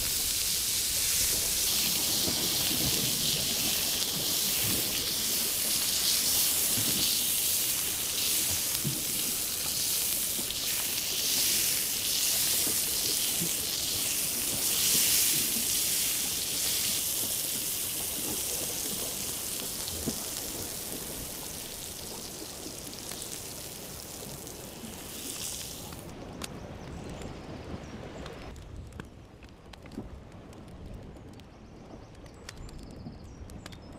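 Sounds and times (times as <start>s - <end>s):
butter sauce sizzling: 0.0s - 26.0s.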